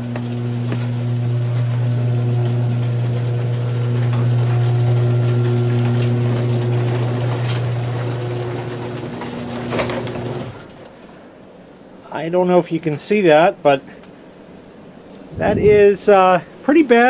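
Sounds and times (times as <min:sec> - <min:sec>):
garage door motor humming: 0:00.0 - 0:11.3.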